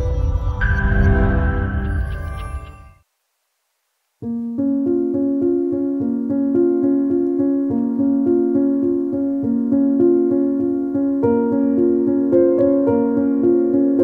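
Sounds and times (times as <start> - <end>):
keyboard playing repeated notes: 4.3 - 14.0.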